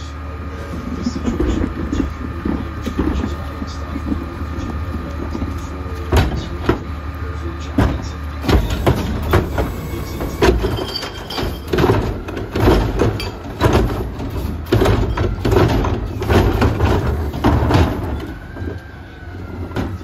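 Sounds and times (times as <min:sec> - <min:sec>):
diesel engine idling: 0:00.0 - 0:20.0
hydraulic whine: 0:00.0 - 0:20.0
cart and trash banging on steel: 0:07.7 - 0:18.8.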